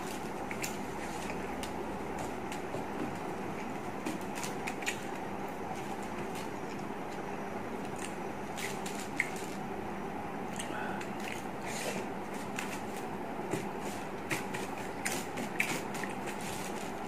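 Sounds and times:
steady background hum: 0.0s - 17.0s
rice squishing: 13.6s - 17.0s.

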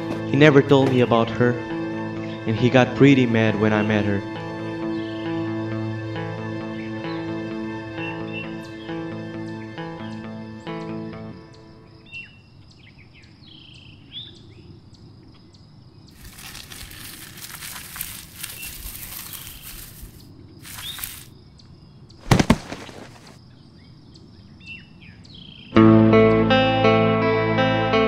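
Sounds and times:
birds chirping: 6.6s - 25.8s
insects ticking: 9.3s - 25.7s
noisy rustle: 16.2s - 21.3s, 22.2s - 23.4s
loud thump: 22.2s - 23.4s.

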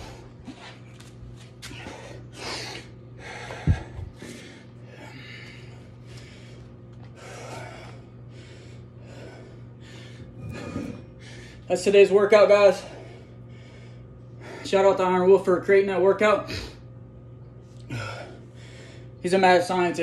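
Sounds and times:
man breathing hard: 0.0s - 0.9s, 1.6s - 11.7s, 12.6s - 14.8s, 17.8s - 19.2s.

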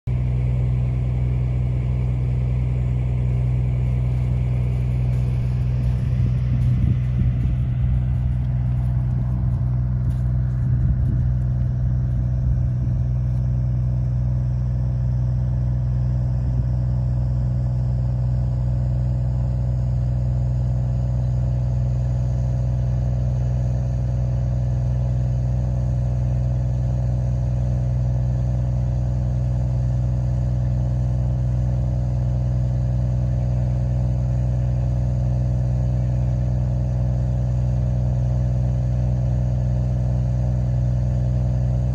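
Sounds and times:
vehicle engine idling: 0.0s - 41.9s
brief low rumbles: 0.1s - 21.5s.

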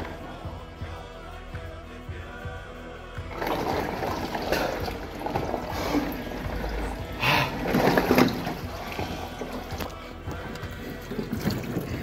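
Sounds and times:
background music: 0.0s - 12.0s
water sloshing and splashing: 3.3s - 12.0s.

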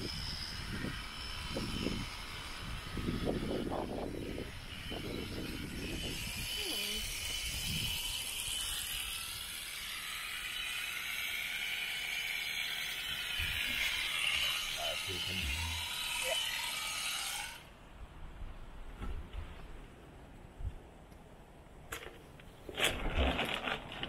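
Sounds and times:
electric shears whirring: 0.0s - 17.7s.

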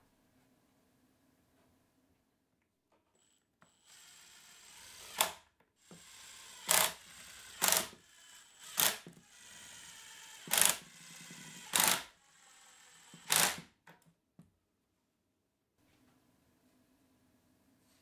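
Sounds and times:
impact driver hammering rattle: 7.6s - 8.0s.

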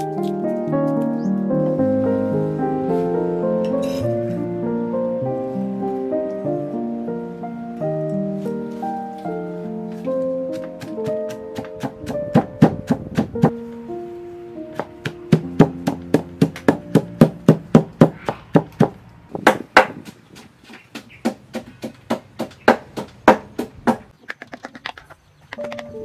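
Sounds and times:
soft background music: 0.0s - 18.1s, 25.6s - 26.0s
wooden pestle pounding in mortar: 14.8s - 24.1s.

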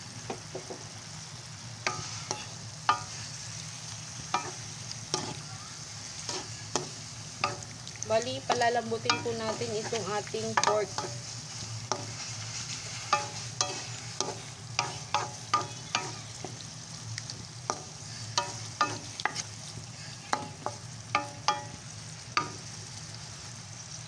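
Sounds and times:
meat sizzling in a frying pan: 0.0s - 24.0s
spatula scraping a pan: 1.8s - 3.5s, 4.3s - 5.4s, 6.2s - 7.8s, 8.4s - 16.7s, 17.6s - 21.8s.

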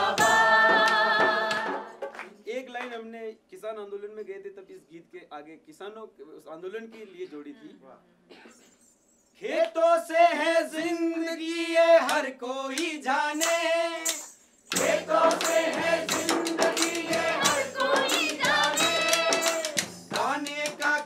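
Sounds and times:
frame drum beating: 0.0s - 2.2s, 14.8s - 21.0s
group singing call and response: 0.0s - 2.2s, 9.4s - 21.0s
wooden hand clappers: 12.1s - 21.0s.

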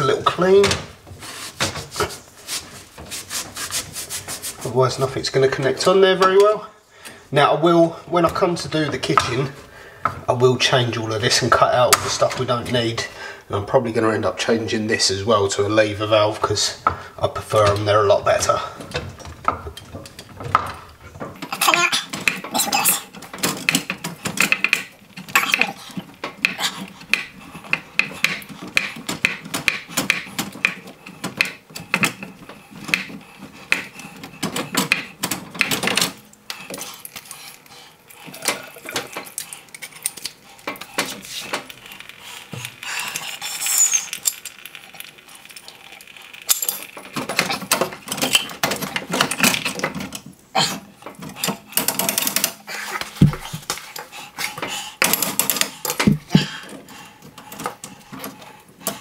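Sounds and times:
metal pipe parts clinking and scraping: 43.0s - 50.2s.

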